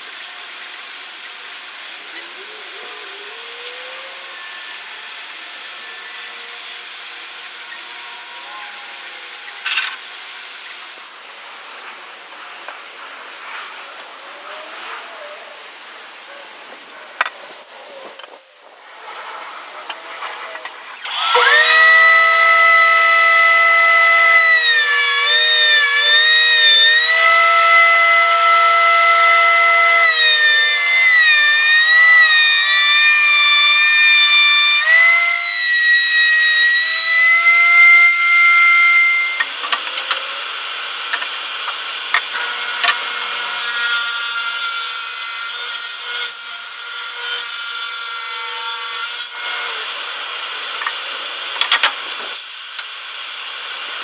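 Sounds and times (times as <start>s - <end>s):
hissing machine cutting noise: 0.0s - 11.9s, 19.0s - 44.8s
planer whining: 19.9s - 52.4s.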